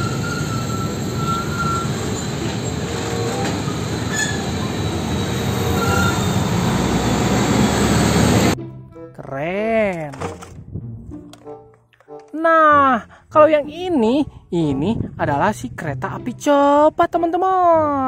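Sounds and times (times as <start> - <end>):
high-pitched squeaks: 0.0 - 8.5
road noise: 0.0 - 8.6
truck diesel engines rumbling: 0.0 - 8.6.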